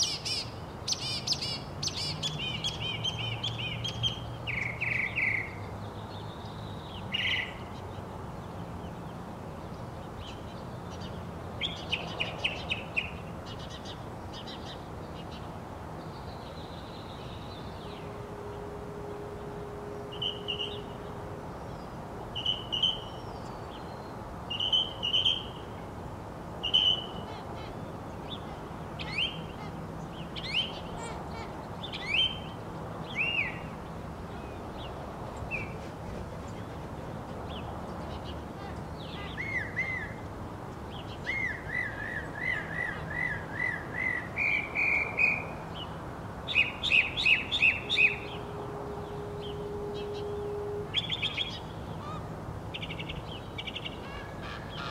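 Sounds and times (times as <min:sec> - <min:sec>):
mockingbird singing: 0:00.0 - 0:05.6, 0:06.6 - 0:07.8, 0:16.2 - 0:23.9, 0:24.5 - 0:25.6, 0:26.6 - 0:33.8, 0:37.5 - 0:40.2, 0:46.5 - 0:54.9.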